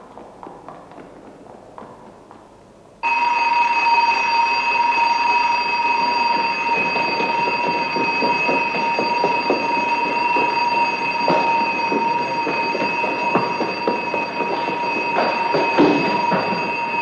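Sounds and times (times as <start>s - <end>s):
people running footfalls: 0.0s - 17.0s
shrill electric alarm: 3.0s - 17.0s.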